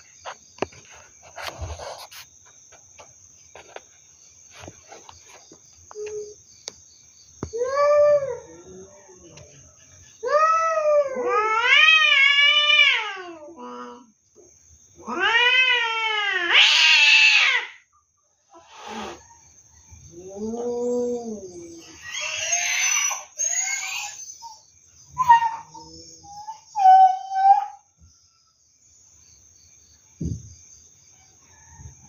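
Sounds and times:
cats yowling: 10.2 - 14.1, 15.0 - 17.8, 20.1 - 27.9
cats hissing: 16.5 - 17.7, 18.5 - 19.3, 20.4 - 24.6.

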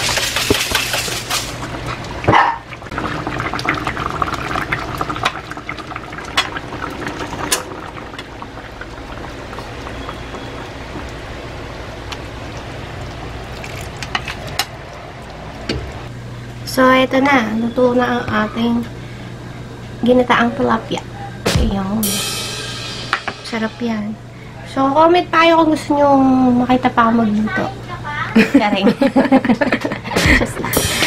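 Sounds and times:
low hum: 1.4 - 25.6
sauce bubbling in a pan: 1.6 - 16.1.

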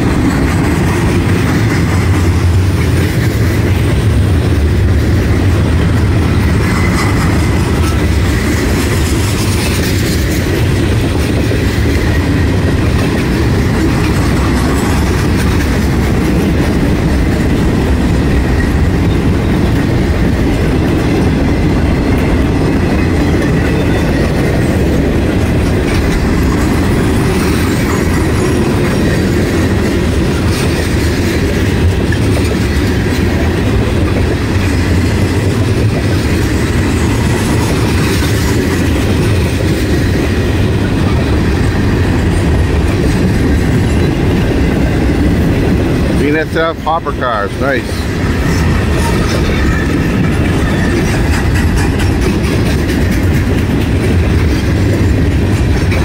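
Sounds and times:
freight train rumbling past: 0.0 - 56.0
wheels clickety-clack on rails: 0.0 - 56.0.

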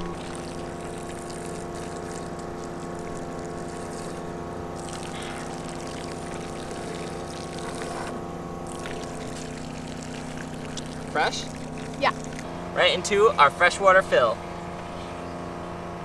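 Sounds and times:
water trickling from hose: 0.0 - 12.5
pump humming: 0.0 - 16.0.

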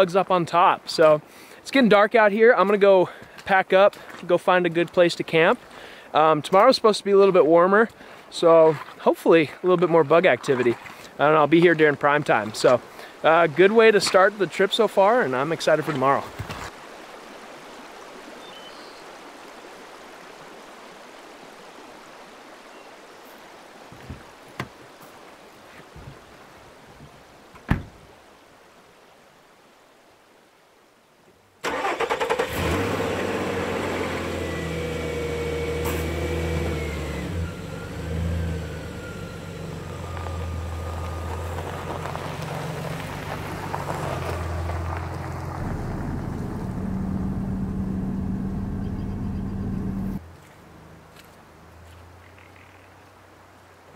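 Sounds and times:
pickup truck engine driving: 31.7 - 52.3.

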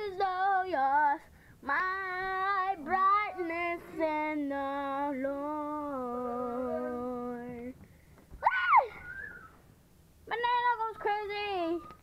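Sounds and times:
girl singing unaccompanied: 0.0 - 7.8, 10.2 - 12.0.

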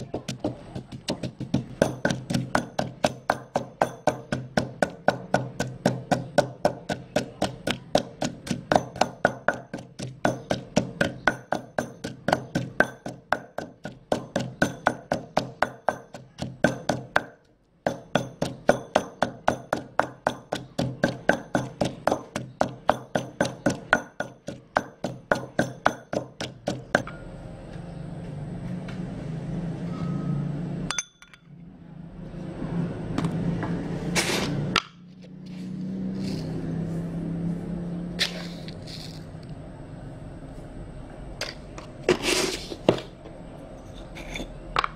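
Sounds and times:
pestle pounding in stone mortar: 0.0 - 27.2.

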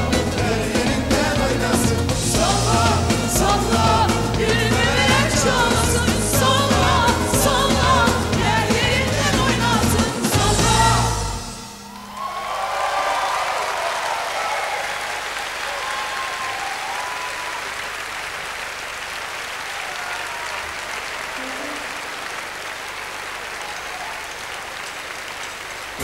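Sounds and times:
audience applauding: 11.8 - 26.0.

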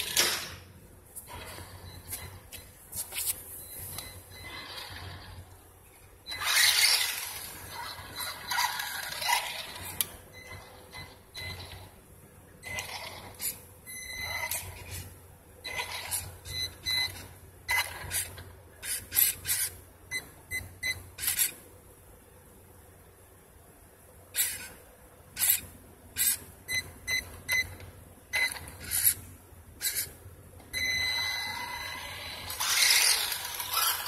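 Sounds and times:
rc truck motor whining: 6.3 - 10.1, 31.5 - 34.0.

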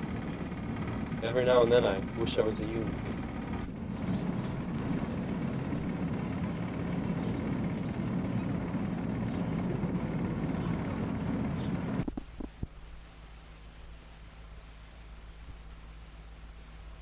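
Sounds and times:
wind buffeting microphone: 0.0 - 12.7
low hum: 0.0 - 17.0.

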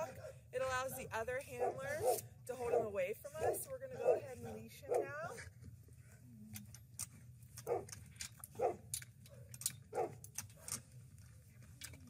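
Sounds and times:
dog barking: 0.0 - 5.4, 7.6 - 7.9, 8.6 - 10.7
leash clips clicking: 6.5 - 12.0
chain-link gate rattling: 6.6 - 12.0.

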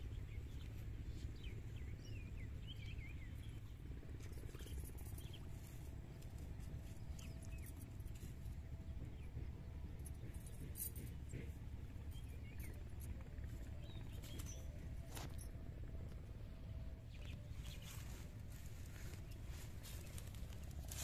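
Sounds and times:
low outdoor rumble: 0.0 - 21.0
small birds chirping: 10.0 - 15.5, 17.1 - 21.0.

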